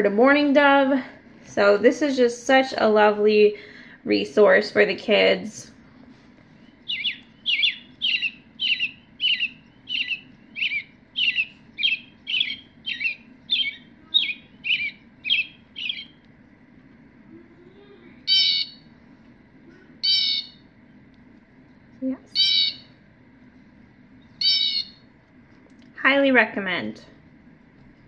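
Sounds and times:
shrill bird call from small speaker: 6.7 - 16.2, 18.3 - 18.8, 20.0 - 20.6, 22.4 - 22.9, 24.4 - 25.0
harsh raspy bird calls: 6.9 - 16.2, 18.3 - 18.8, 20.0 - 20.6, 22.4 - 22.9, 24.4 - 25.0.

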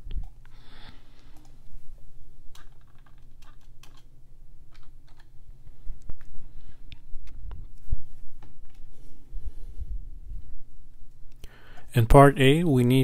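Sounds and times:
steady low hum: 0.0 - 13.0
typing on computer keyboard: 2.5 - 4.1, 4.7 - 5.3.

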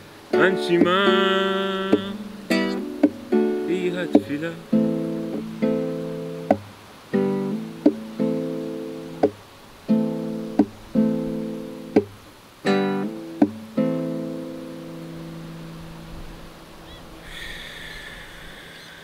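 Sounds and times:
acoustic guitar strummed slowly: 0.0 - 17.0
muted slap on guitar strings: 1.9 - 2.2, 3.0 - 3.3, 6.4 - 6.7, 7.8 - 8.1, 9.2 - 9.4, 10.5 - 10.8, 11.9 - 12.2, 13.4 - 13.6.

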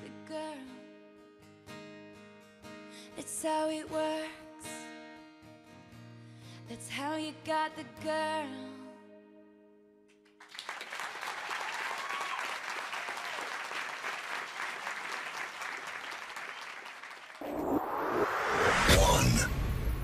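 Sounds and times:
people clapping: 10.2 - 17.5.

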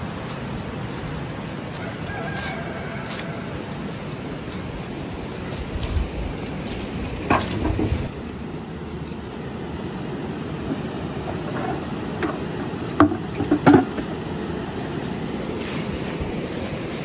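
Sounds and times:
footsteps on wet grass: 0.0 - 9.7, 14.8 - 17.0
rushing background noise: 0.0 - 17.0.

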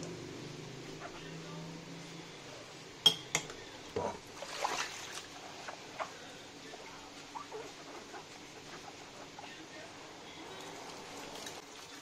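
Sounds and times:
crockery clinking: 3.0 - 3.5.

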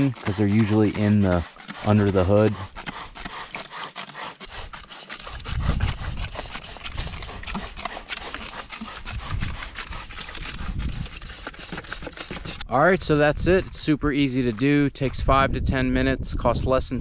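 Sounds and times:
spray bottle squirting: 6.0 - 12.6.

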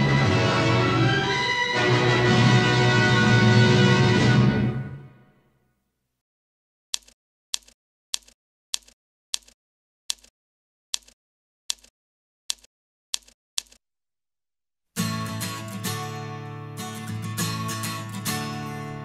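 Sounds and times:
music: 0.0 - 5.5, 15.0 - 19.0.

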